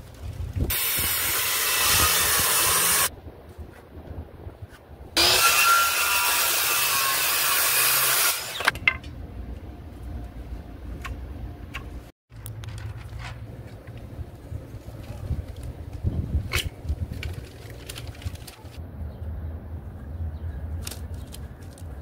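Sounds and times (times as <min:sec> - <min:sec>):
circular saw cutting wood: 0:00.7 - 0:03.1, 0:05.2 - 0:08.8.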